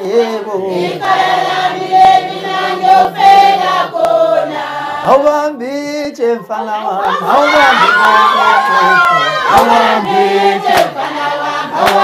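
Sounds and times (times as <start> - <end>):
man singing lead: 0.0 - 1.0, 5.0 - 10.6
choir singing: 0.0 - 5.2, 6.6 - 12.0.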